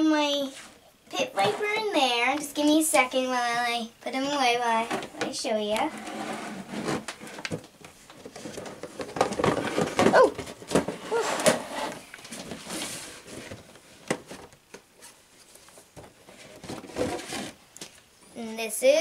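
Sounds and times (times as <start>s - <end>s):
boxes knocking scraping and rustling: 0.5s - 1.8s, 4.7s - 18.0s.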